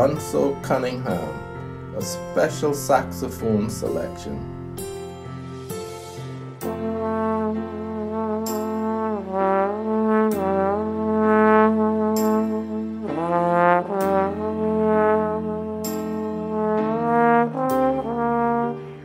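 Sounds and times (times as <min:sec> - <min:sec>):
soft accompaniment track: 0:00.0 - 0:19.0
slide trombone melody: 0:06.0 - 0:19.0.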